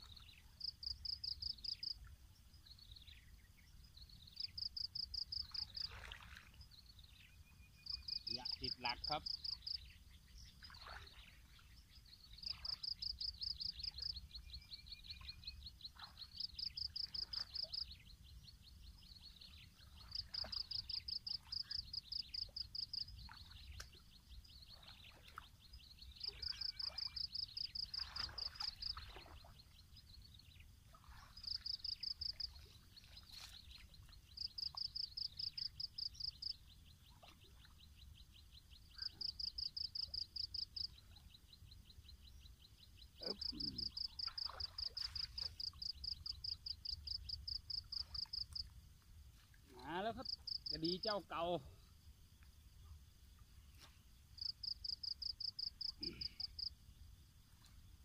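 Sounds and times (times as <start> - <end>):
water splashes from wading: 5.3 - 6.8, 10.4 - 13.0, 19.8 - 21.8, 22.5 - 29.9, 30.9 - 35.3, 43.2 - 45.9.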